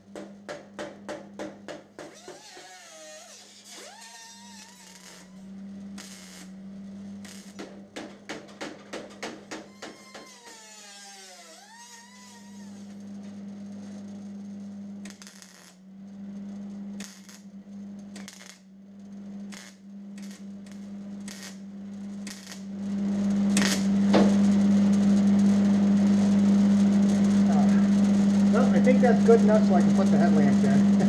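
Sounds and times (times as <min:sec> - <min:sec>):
low machine hum: 0:00.0 - 0:31.0
power tool winding down: 0:02.1 - 0:05.4, 0:10.0 - 0:13.0
noisy bursts on metal: 0:02.1 - 0:13.0.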